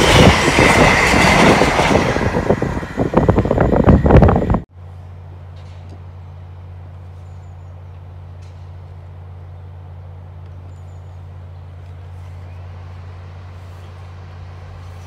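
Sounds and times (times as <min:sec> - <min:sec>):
low mechanical hum: 0:04.7 - 0:15.0.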